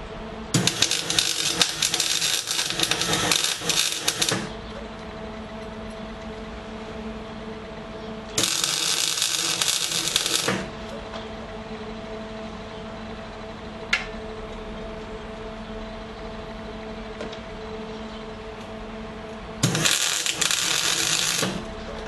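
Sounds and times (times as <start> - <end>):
steady hum: 0.0 - 22.0
welding arc crackling buzz: 0.5 - 4.6, 8.3 - 11.0, 19.6 - 21.8.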